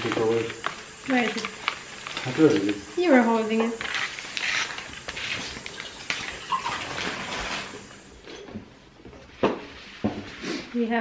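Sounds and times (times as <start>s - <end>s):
paper rustling: 0.0s - 2.9s, 3.8s - 7.9s.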